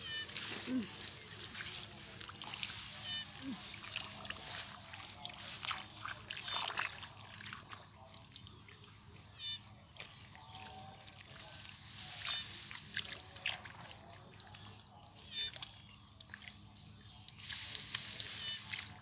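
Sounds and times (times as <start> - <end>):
hands sloshing in muddy water: 0.0 - 8.7.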